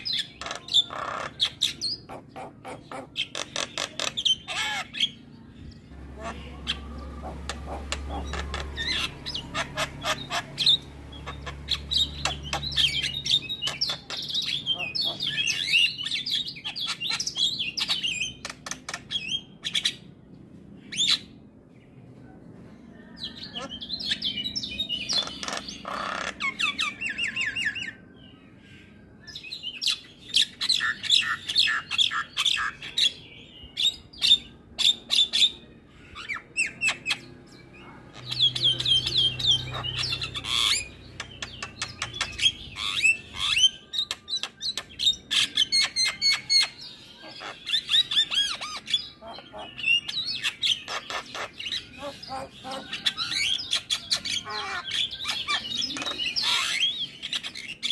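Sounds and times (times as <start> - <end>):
myna bird chattering: 0.0 - 20.0, 23.3 - 28.0, 36.2 - 57.9.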